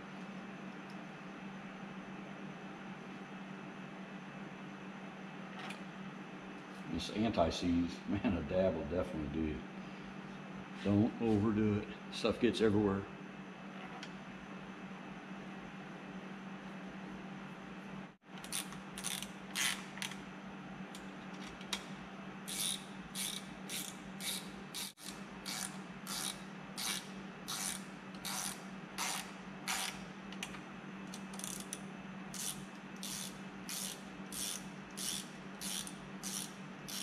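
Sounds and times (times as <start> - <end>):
hand ratchet clicking: 22.5 - 30.0, 32.4 - 37.0.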